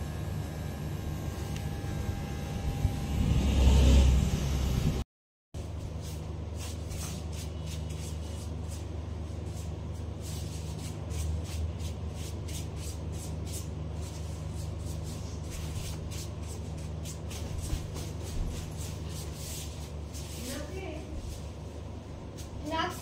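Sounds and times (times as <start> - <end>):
electric hair clipper buzzing: 0.0 - 5.0
clipper rustling strokes through hair: 13.4 - 21.6.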